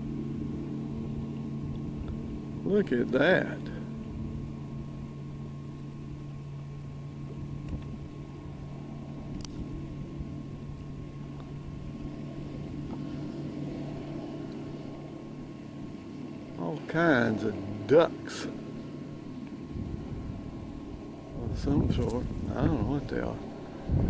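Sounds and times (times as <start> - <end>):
boat motor idling: 0.0 - 24.0
sharp click: 9.3 - 9.6.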